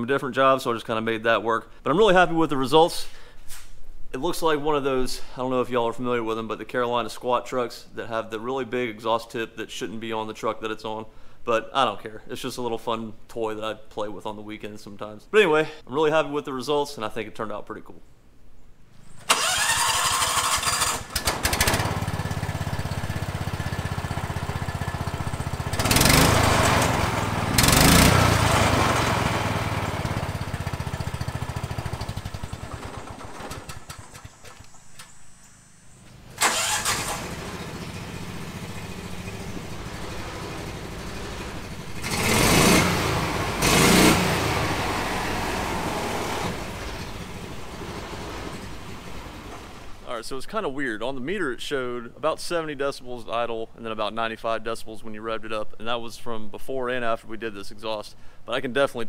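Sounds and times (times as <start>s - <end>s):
small engine starting and idling: 19.0s - 50.0s
engine revving: 19.3s - 34.7s, 36.3s - 50.0s.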